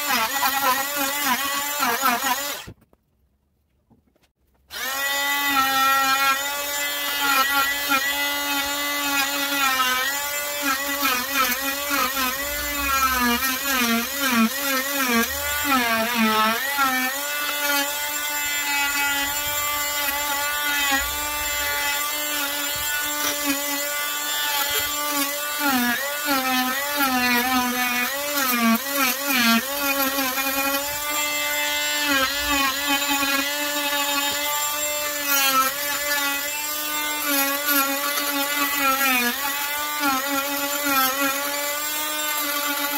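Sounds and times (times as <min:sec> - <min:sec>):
oscillating tool cutting wood: 0:00.0 - 0:02.8, 0:04.7 - 0:42.9.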